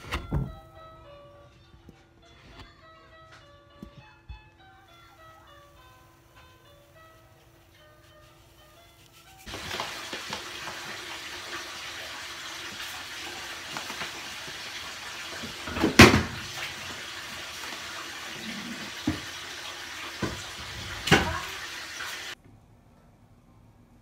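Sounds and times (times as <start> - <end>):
tap water running into bathtub: 9.5 - 22.4.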